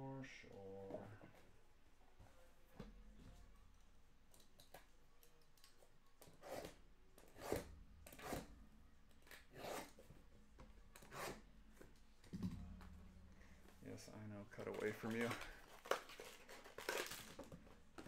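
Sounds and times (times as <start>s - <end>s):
blade cutting cardboard: 6.4s - 8.5s.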